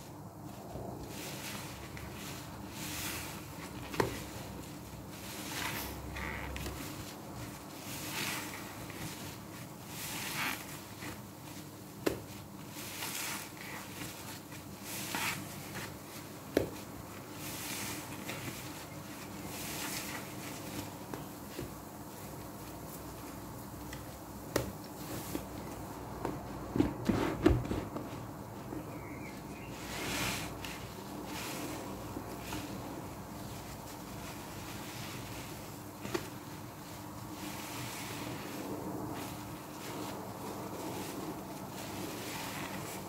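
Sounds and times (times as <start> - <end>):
sponge squelching in suds: 29.0 - 43.0.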